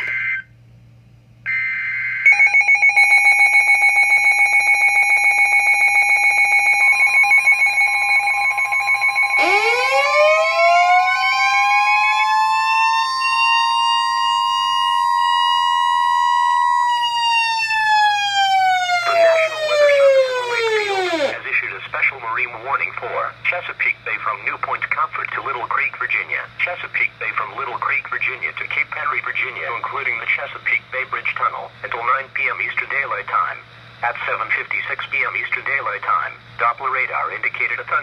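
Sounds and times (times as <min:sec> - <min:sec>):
pulsing electronic alarm beep: 0:01.5 - 0:14.8
electronic siren: 0:01.5 - 0:21.4
steady warning alarm tone: 0:01.5 - 0:21.4.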